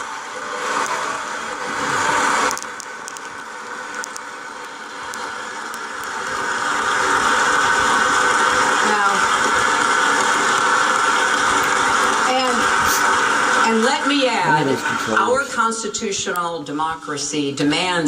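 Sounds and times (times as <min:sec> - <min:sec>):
crowd applause: 0:00.0 - 0:02.8.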